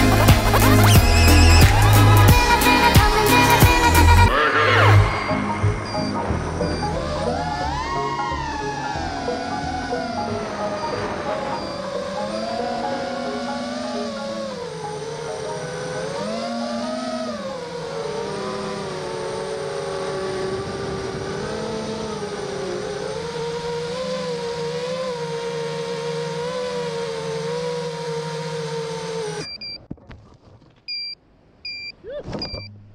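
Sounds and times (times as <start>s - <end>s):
quadcopter motors whining: 0.0s - 29.8s
short high beeps: 5.6s - 7.0s, 29.4s - 29.8s, 30.9s - 32.8s.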